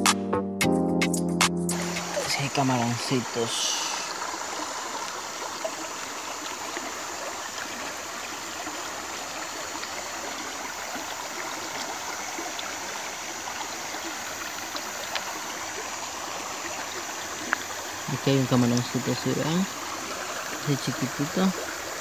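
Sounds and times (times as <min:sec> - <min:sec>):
stream running over stones: 0:01.7 - 0:22.0.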